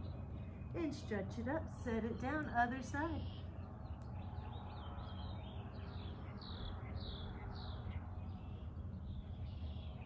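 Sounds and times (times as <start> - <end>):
low background rumble: 0.0 - 10.0.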